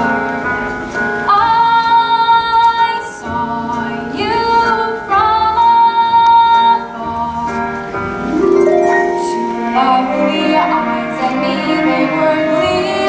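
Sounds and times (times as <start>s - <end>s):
soft instrumental accompaniment: 0.0s - 13.0s
girl singing a ballad: 1.3s - 7.7s.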